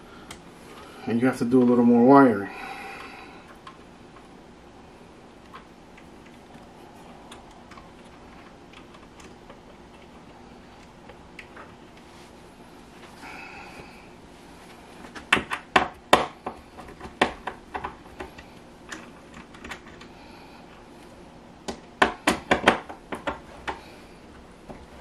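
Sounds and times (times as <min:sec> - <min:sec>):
handling clicks on screw terminals: 0:16.8 - 0:20.1.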